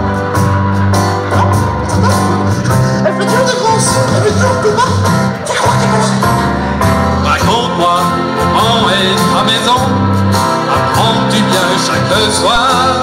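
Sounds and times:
instrumental accompaniment: 0:00.0 - 0:13.0
person singing into microphone: 0:07.3 - 0:13.0.

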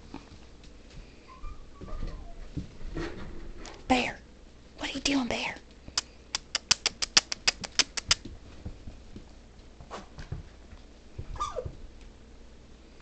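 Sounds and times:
puppy whining: 0:01.2 - 0:02.6, 0:11.3 - 0:11.8
puppy claws clicking on hard floor: 0:05.9 - 0:10.8.

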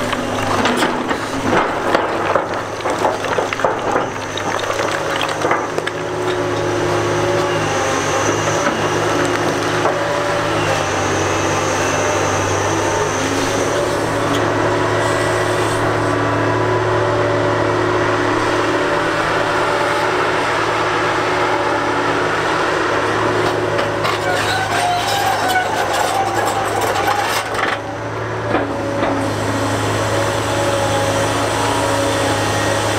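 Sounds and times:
rock grinding and scraping: 0:00.0 - 0:10.0, 0:23.8 - 0:27.8
diesel engine hum: 0:00.0 - 0:32.9.

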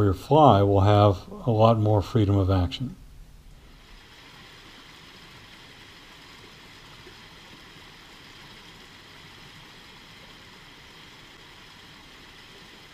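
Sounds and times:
water rushing over rocks: 0:03.7 - 0:12.9.

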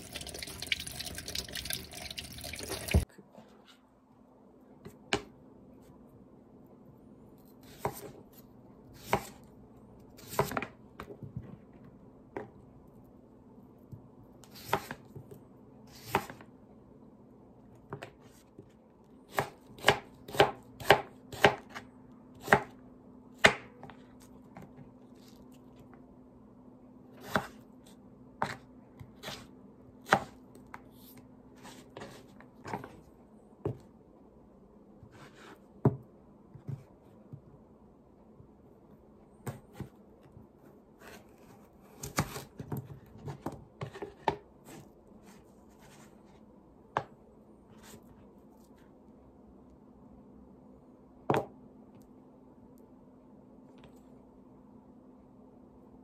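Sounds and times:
tap water running in a sink: 0:00.0 - 0:03.0.

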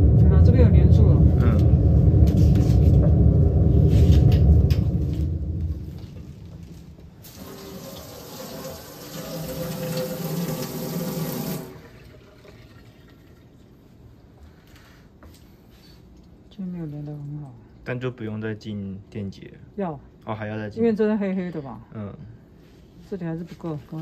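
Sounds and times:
loud low rumble: 0:00.0 - 0:07.2.

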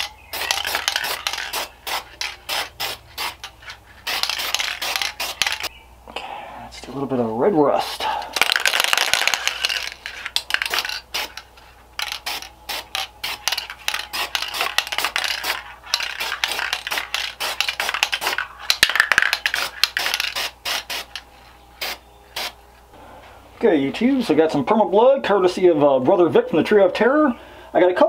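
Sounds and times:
spray can being shaken: 0:00.0 - 0:05.7, 0:07.8 - 0:21.2.

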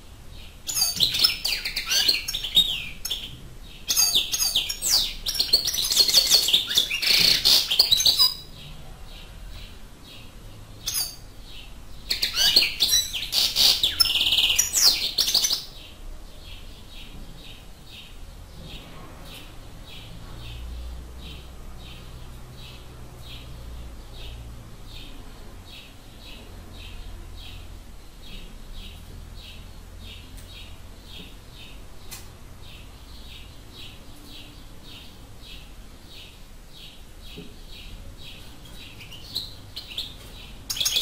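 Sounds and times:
goldfinch twittering: 0:00.7 - 0:03.3, 0:03.9 - 0:08.5, 0:10.8 - 0:11.2, 0:12.1 - 0:15.7.

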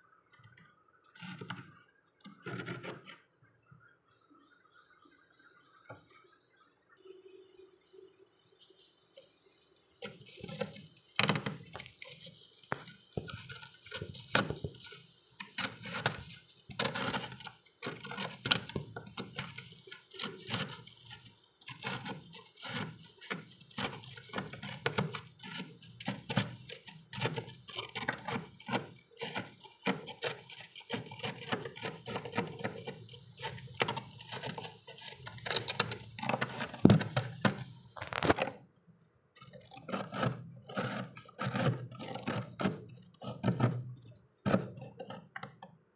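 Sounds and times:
knife scraping ice: 0:10.0 - 0:38.6, 0:39.4 - 0:45.7.

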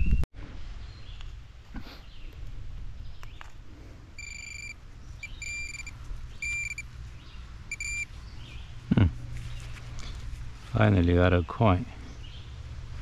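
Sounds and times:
metal detector beeping: 0:04.2 - 0:06.9, 0:07.7 - 0:08.2.

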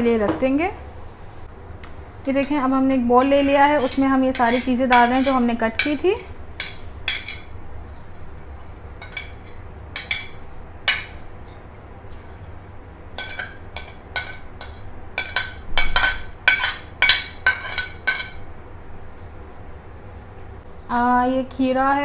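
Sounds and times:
spoon clinking on plate and bowl: 0:03.8 - 0:06.0, 0:06.6 - 0:07.5, 0:09.0 - 0:11.6, 0:13.2 - 0:18.4.

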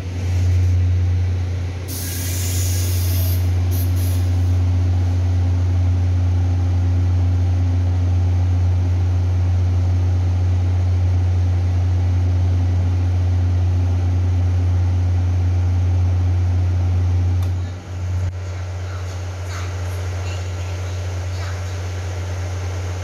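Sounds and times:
train equipment humming: 0:00.0 - 0:23.0.

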